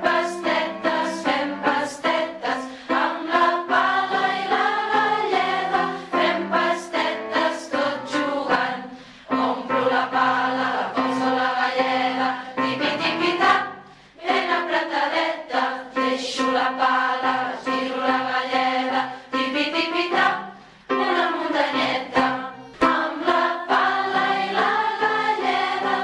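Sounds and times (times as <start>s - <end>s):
group of voices singing: 0.0s - 26.0s.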